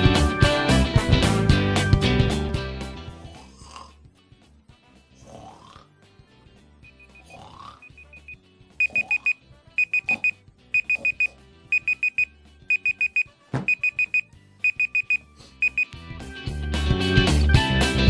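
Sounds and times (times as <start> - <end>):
faint background music: 2.6 - 18.0
alarm clock beeping: 6.9 - 15.9.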